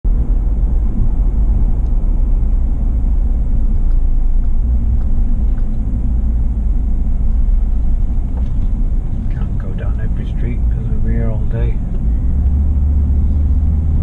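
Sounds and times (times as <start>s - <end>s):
car engine and tyre rumble: 0.0s - 14.0s.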